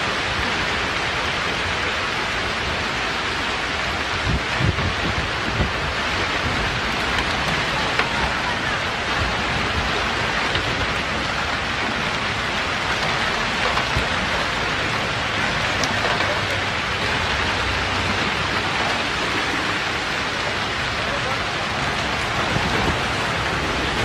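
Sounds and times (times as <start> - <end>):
heavy rain on road: 0.0 - 24.0
hailstones clicking: 4.7 - 20.9.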